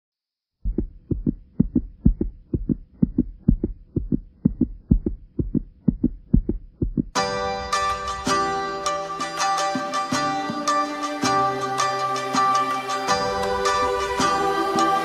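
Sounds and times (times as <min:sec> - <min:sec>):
heartbeat thumps: 0:00.6 - 0:07.2.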